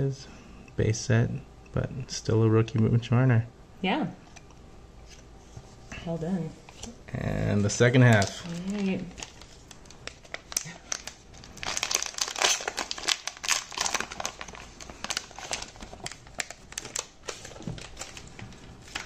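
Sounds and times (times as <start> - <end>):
foil wrapper crinkling: 7.8 - 19.0.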